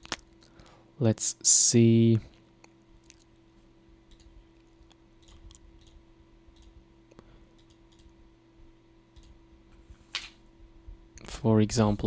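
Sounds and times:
steady low hum: 0.0s - 12.0s
computer mouse clicks: 4.1s - 8.2s, 9.1s - 9.4s.

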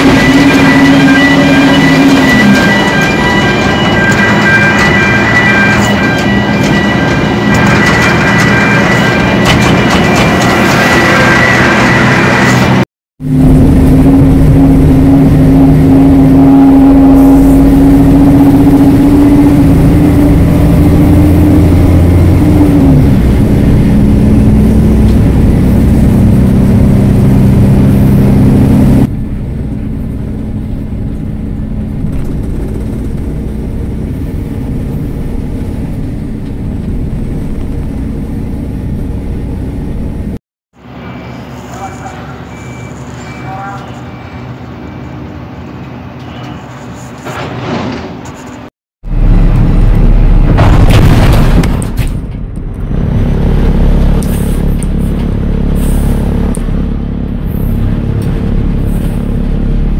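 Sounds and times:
tractor engine humming: 13.2s - 40.4s.

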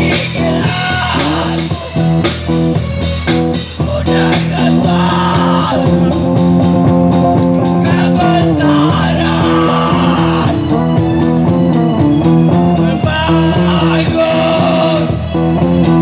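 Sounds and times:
man singing into a microphone: 0.0s - 2.0s, 3.7s - 6.3s, 7.7s - 10.9s, 12.7s - 15.6s
drum kit beat: 0.0s - 16.0s
live rock band: 0.0s - 16.0s.

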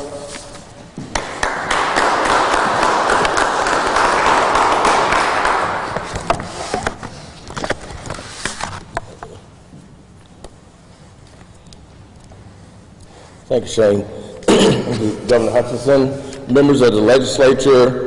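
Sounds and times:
audience applauding: 1.1s - 6.2s.

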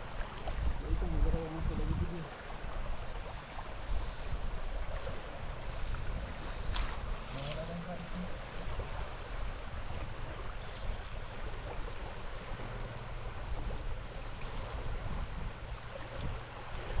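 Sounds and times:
water rushing: 0.0s - 17.0s
wind buffeting microphone: 0.0s - 17.0s.

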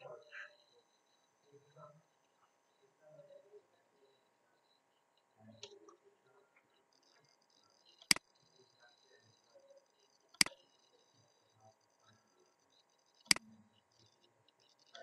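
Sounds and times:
faint room noise: 0.0s - 15.0s.

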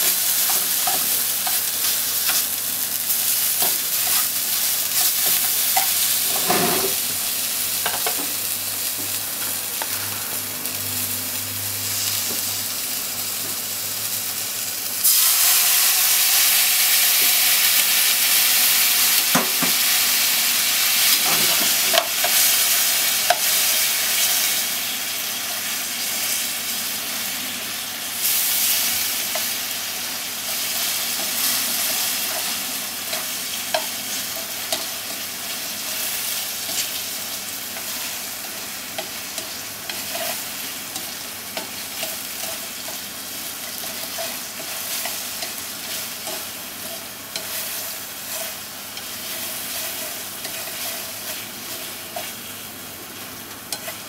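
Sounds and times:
food sizzling in frying pan: 0.0s - 54.0s
chopsticks scraping a pan: 3.5s - 7.1s, 39.0s - 43.1s, 43.7s - 52.5s.

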